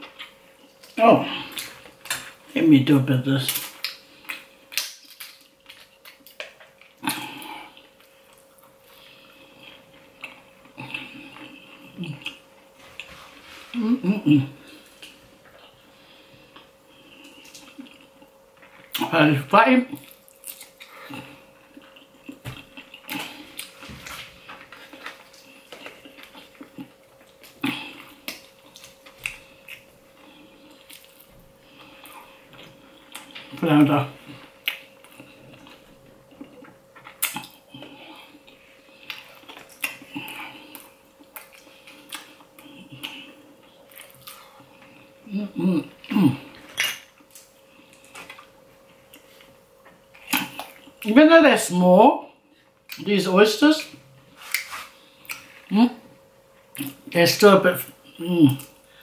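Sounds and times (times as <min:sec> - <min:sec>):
faint steady hum: 0:00.0 - 0:59.0
chewing and wet mouth sounds: 0:03.5 - 0:13.4, 0:16.4 - 0:19.1, 0:19.9 - 0:45.2, 0:45.8 - 0:51.1, 0:53.8 - 0:55.7, 0:56.5 - 0:57.1.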